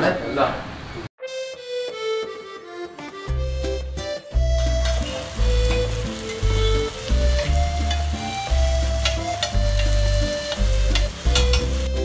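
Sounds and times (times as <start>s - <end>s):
chicken sizzling on a griddle: 4.6s - 12.0s.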